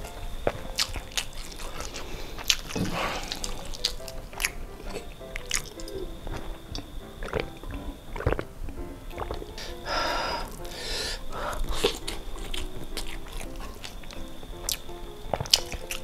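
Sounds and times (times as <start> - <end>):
background music: 0.0 - 16.0
close-miked chewing: 0.0 - 16.0
wet mouth clicks: 0.5 - 9.8, 10.5 - 16.0
swallowing gulps of a drink: 1.3 - 14.0.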